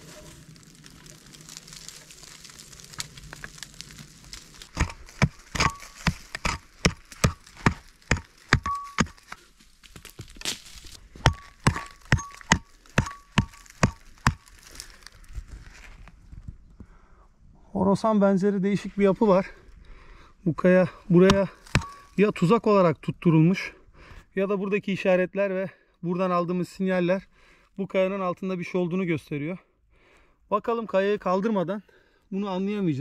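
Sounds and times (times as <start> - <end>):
pick striking stony soil: 0.0 - 15.9, 21.1 - 22.5.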